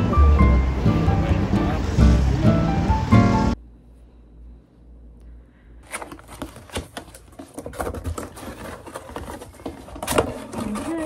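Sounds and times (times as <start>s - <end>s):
cardboard box rustling and scraping: 5.8s - 11.0s.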